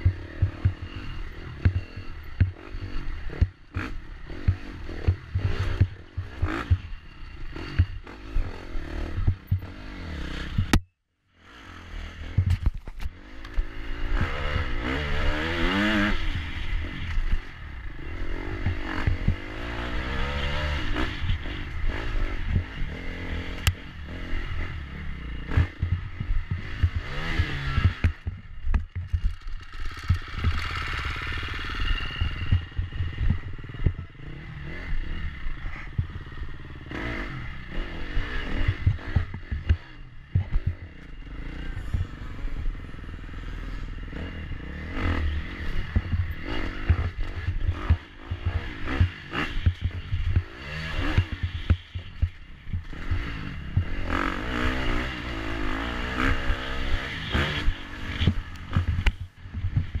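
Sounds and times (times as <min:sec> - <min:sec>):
dirt bike engine revving: 0:00.0 - 0:10.8, 0:11.4 - 1:00.0
bike knocking and clattering: 0:27.8 - 0:31.4.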